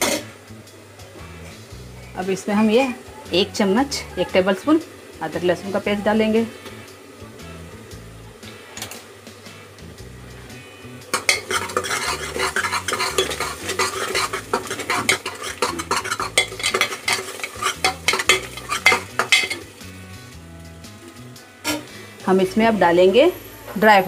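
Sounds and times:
masala sizzling: 0.0 - 24.0
ladle clinking and scraping metal: 11.1 - 19.8.

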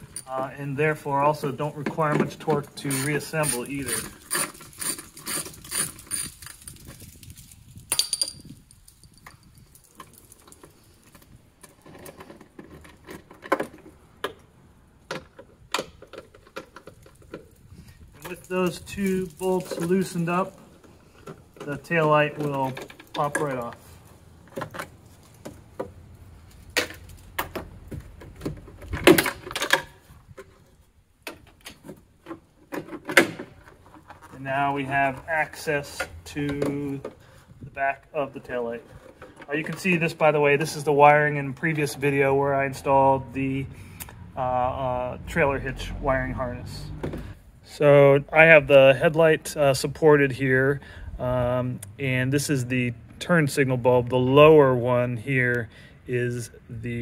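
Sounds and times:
metal tool clatter: 7.9 - 9.6.

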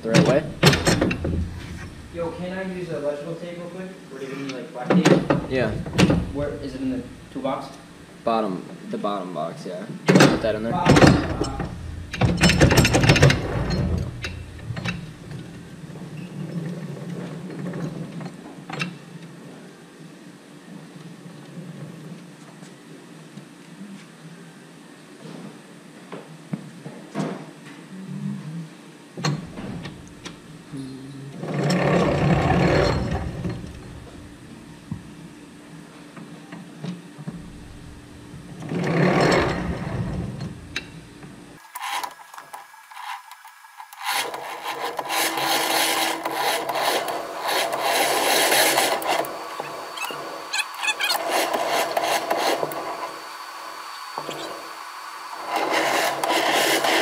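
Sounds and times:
rasping rubbing scrapes: 0.3 - 2.6, 44.0 - 53.4, 55.4 - 57.0.

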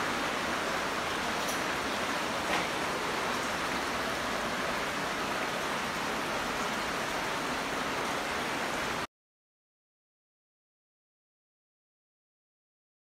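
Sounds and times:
running water in a cave: 0.0 - 9.1.

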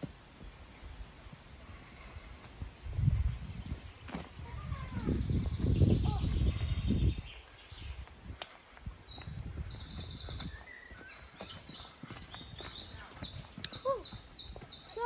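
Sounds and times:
footsteps on a path: 0.0 - 15.0
songbird trilling: 8.8 - 15.0.

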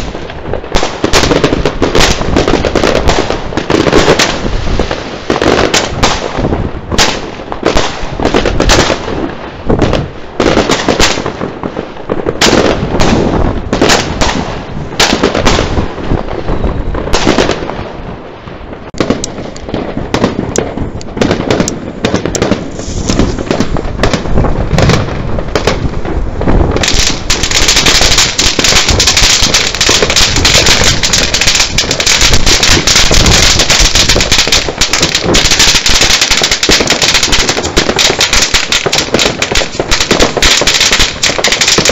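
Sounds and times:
fireworks bangs and crackling: 0.0 - 41.9.

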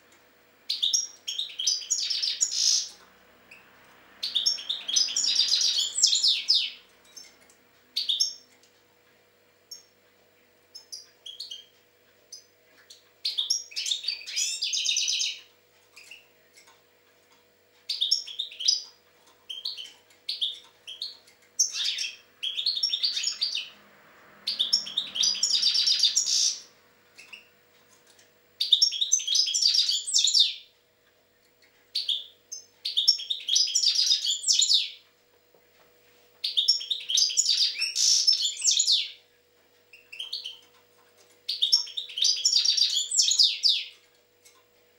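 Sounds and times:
bird call notes: 0.7 - 7.4, 24.5 - 27.6
finch twittering song: 0.7 - 8.5, 10.7 - 16.3, 17.8 - 23.8, 24.4 - 27.6, 28.6 - 30.7, 31.9 - 35.0, 36.4 - 39.2, 39.9 - 40.7, 41.4 - 44.0.

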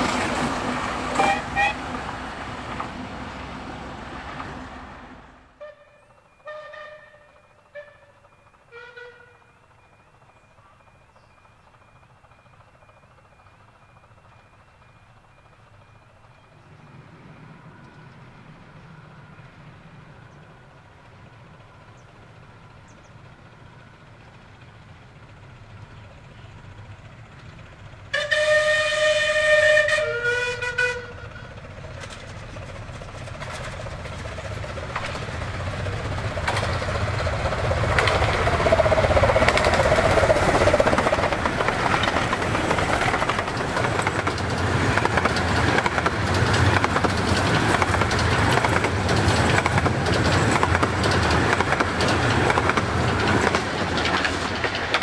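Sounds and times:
train wheel clatter: 0.0 - 3.1, 5.6 - 55.0
steam locomotive rumble: 0.0 - 55.0
steam whistle: 1.1 - 1.9, 5.6 - 9.5, 28.1 - 31.5.

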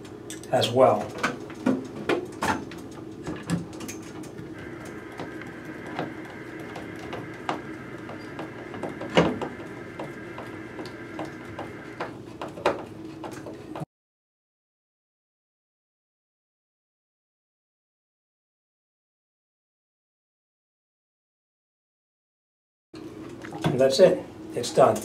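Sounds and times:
faint steady hum: 0.0 - 13.8.

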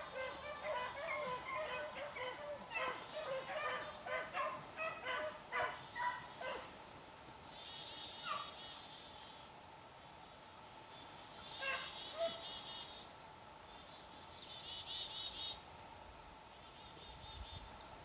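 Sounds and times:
dogs baying and yelping: 0.0 - 6.7.

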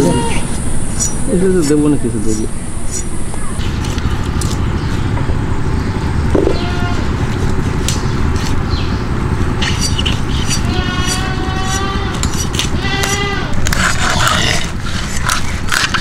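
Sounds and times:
goat bleating: 0.0 - 0.6, 6.5 - 7.1, 9.8 - 13.7
steady low rumble: 0.0 - 16.0.

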